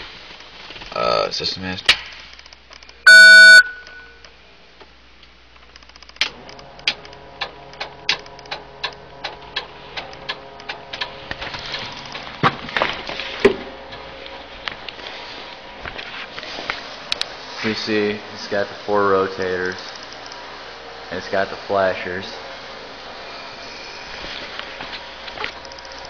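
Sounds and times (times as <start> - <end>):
steady electrical hum: 0.0 - 26.0
loud beep: 3.1 - 4.2
relays clicking: 5.6 - 12.4.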